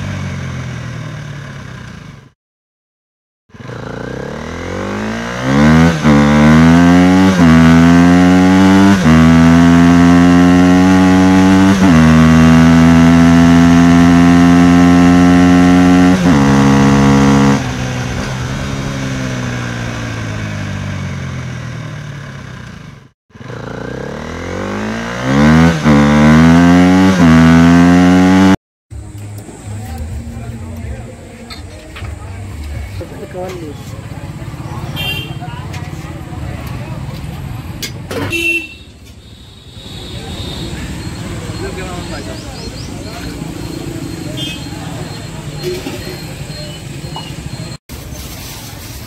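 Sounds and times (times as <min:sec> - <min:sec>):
vehicle engine accelerating: 0:00.0 - 0:02.4, 0:03.5 - 0:31.4, 0:40.7 - 0:49.0.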